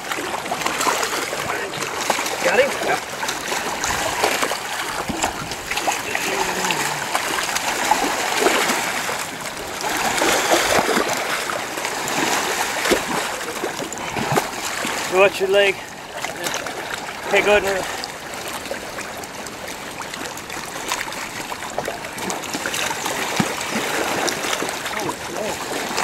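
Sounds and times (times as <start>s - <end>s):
shallow river water splashing: 0.0s - 26.0s.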